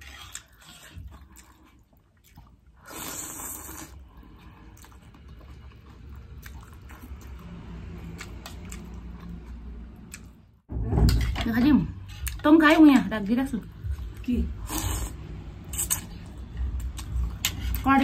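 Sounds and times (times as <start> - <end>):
chewing: 0.0 - 10.4
noodle slurp: 2.8 - 4.0.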